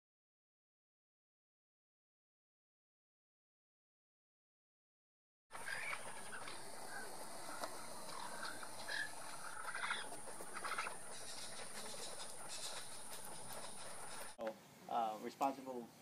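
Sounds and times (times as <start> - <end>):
birds calling and chattering: 5.5 - 14.4
steady high hiss: 5.5 - 16.0.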